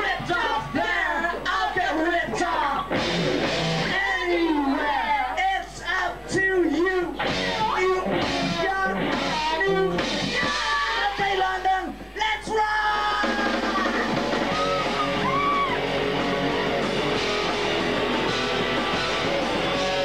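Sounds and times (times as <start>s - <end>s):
singer yelling: 0.0s - 3.0s, 3.8s - 16.9s
rock band playing: 2.8s - 4.7s, 7.1s - 11.1s, 13.0s - 20.0s
electric guitar chords: 2.9s - 3.9s, 14.1s - 20.0s.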